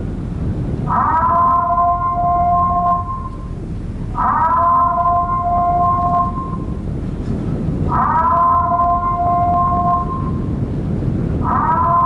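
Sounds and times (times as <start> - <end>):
constant low rumble: 0.0 - 12.0
two-tone siren wail: 0.9 - 6.8, 7.9 - 10.6, 11.4 - 12.0.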